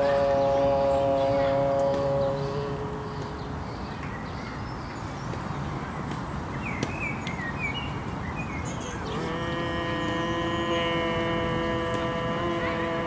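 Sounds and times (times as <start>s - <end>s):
man humming a long steady tone: 0.0s - 3.6s, 9.0s - 13.0s
bird chirps: 0.0s - 9.4s
outdoor park background: 0.0s - 13.0s.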